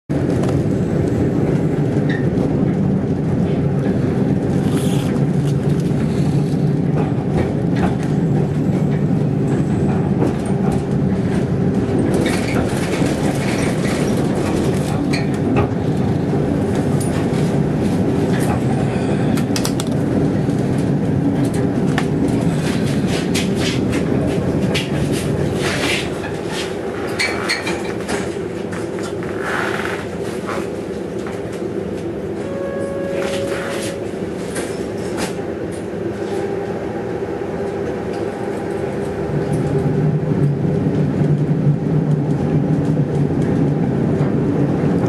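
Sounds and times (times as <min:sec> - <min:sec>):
tram low rumble: 0:00.1 - 0:45.0
wheels clicking on rails: 0:00.3 - 0:32.1.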